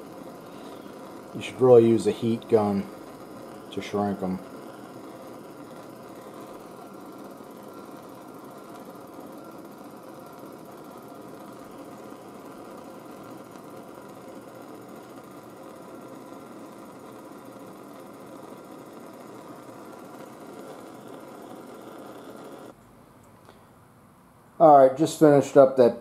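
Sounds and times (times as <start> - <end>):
propane torch flame burning: 0.0 - 22.8.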